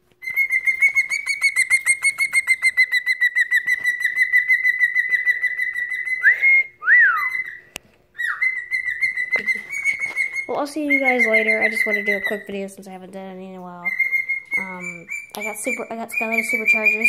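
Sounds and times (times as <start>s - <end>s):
cockatiel trilling: 0.2s - 6.4s, 7.1s - 12.6s, 13.8s - 17.0s
cockatiel swooping whistles: 0.2s - 12.5s.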